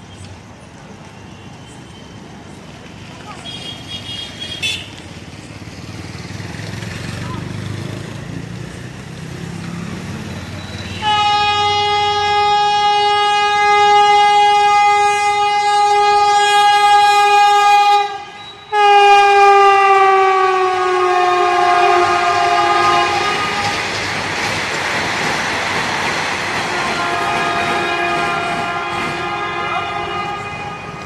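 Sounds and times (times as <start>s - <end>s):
rush of passing train coaches: 0.0s - 31.0s
train horn blasts: 10.8s - 24.0s, 26.7s - 31.0s.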